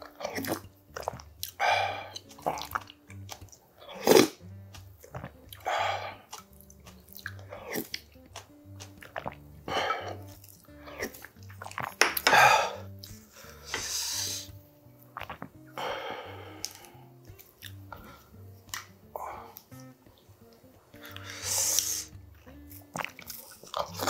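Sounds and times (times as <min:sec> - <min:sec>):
mouth clicks: 0:00.0 - 0:24.0
person chewing: 0:00.0 - 0:24.0
person slurping broth: 0:00.2 - 0:03.0, 0:03.8 - 0:08.1, 0:08.8 - 0:14.6, 0:15.2 - 0:19.7, 0:21.0 - 0:22.2.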